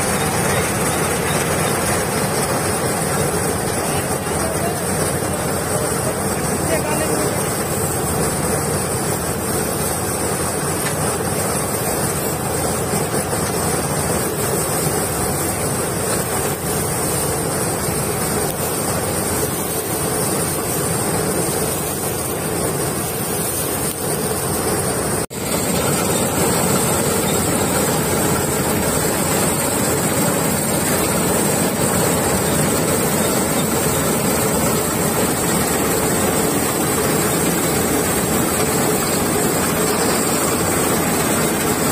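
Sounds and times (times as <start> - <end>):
combine harvester running: 0.0 - 41.9.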